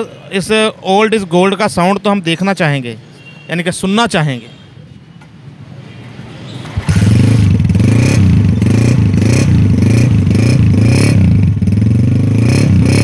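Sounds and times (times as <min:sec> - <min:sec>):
motorcycle kick-started: 0:06.6 - 0:08.9
motorcycle engine revving: 0:06.7 - 0:13.0.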